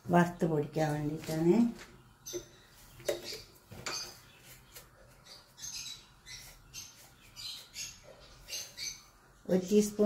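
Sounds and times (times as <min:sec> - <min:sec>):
high bird chirps: 0:02.1 - 0:09.2.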